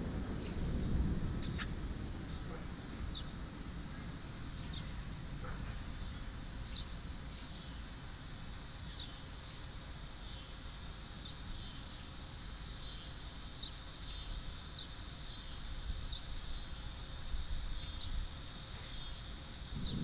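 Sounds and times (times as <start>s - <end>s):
insects droning: 0.0s - 20.0s
low rumble: 19.8s - 20.0s.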